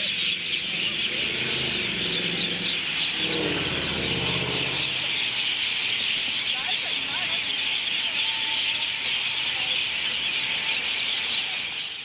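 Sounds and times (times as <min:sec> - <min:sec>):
passing vehicle engine hum: 0:00.0 - 0:07.1
flock of birds calling: 0:00.0 - 0:12.0.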